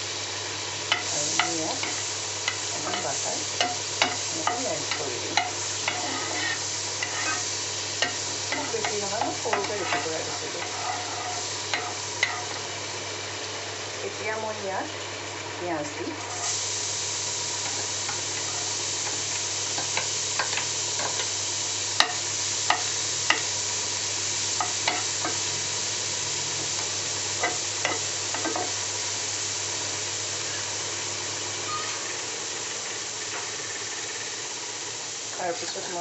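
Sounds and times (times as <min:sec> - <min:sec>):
onion sizzling in butter: 0:00.0 - 0:36.0.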